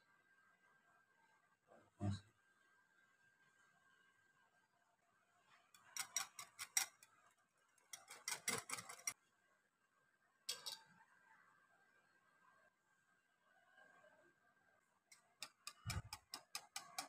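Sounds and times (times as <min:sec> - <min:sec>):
wire whisk clicking against glass: 0:05.8 - 0:07.0, 0:15.1 - 0:17.0
whisk clattering: 0:05.8 - 0:07.2, 0:07.8 - 0:09.2, 0:15.4 - 0:17.0.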